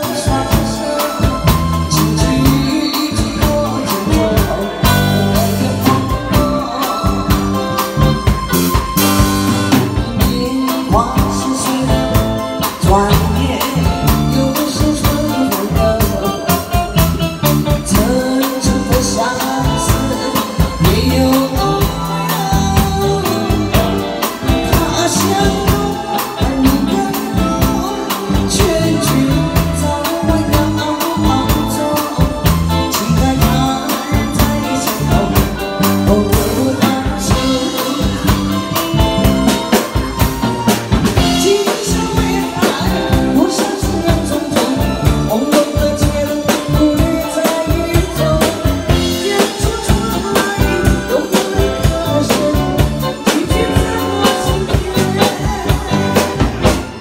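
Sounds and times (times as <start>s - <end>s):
drum kit: 0.0s - 57.0s
electric guitar: 0.0s - 57.0s
woman singing into microphone: 0.0s - 57.0s.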